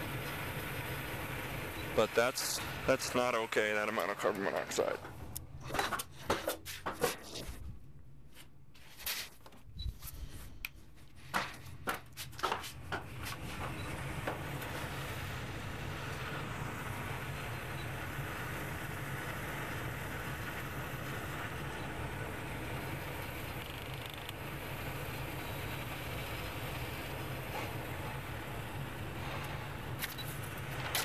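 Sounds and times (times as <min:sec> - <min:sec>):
gas furnace running with hum: 0:00.0 - 0:06.9, 0:10.3 - 0:31.0.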